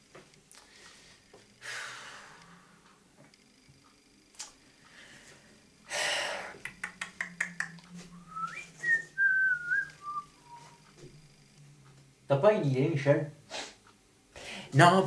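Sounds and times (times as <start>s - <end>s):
breathy exhale: 0.6s - 2.9s, 4.9s - 6.6s, 14.4s - 14.7s
man whistling a tune: 8.2s - 10.8s.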